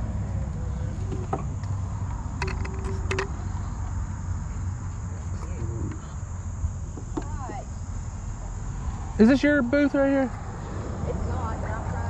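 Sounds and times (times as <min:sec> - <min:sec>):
insects chirring in grass: 0:00.5 - 0:12.0.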